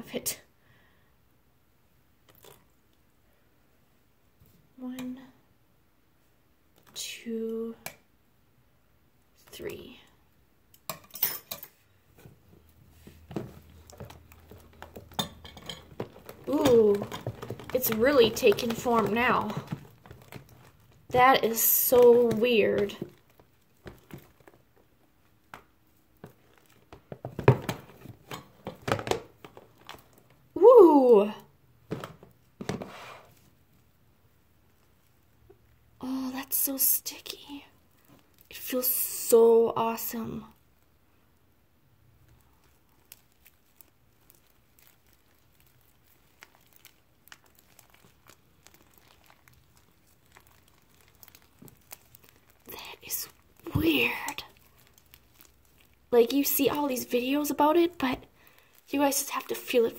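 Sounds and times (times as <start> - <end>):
slime squelching under fingers: 13.1 - 27.0, 42.1 - 59.9.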